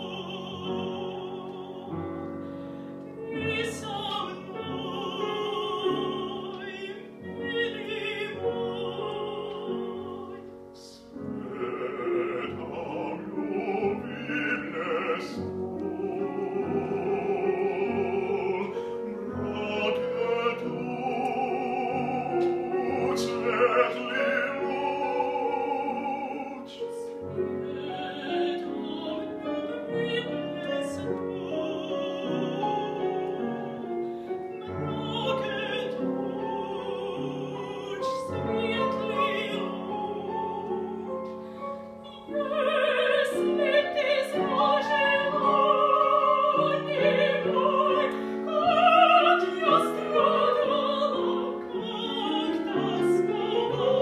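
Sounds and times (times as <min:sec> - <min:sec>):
piano accompaniment: 0:00.0 - 0:54.0
woman singing opera: 0:00.0 - 0:54.0.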